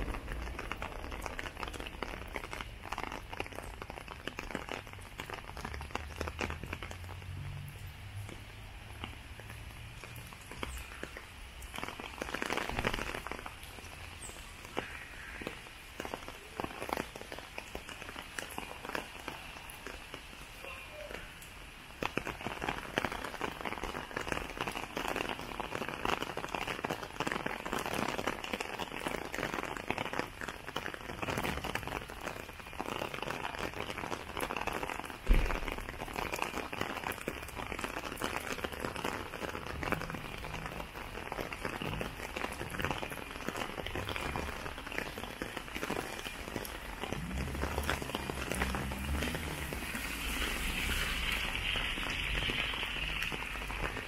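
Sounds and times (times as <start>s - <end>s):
steady rain pattering: 0.0s - 54.0s
thump: 35.3s - 35.8s.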